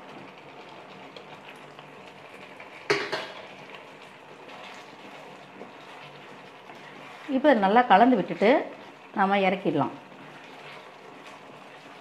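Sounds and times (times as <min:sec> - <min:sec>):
gravy simmering: 0:00.0 - 0:12.0
metal clank on cooking pan: 0:02.9 - 0:03.4.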